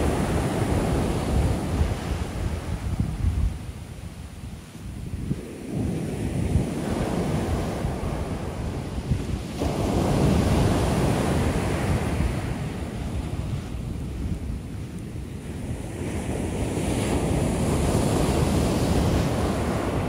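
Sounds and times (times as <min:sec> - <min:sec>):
wave breaking near shore: 0:00.0 - 0:20.0
waves washing up sand: 0:00.0 - 0:20.0.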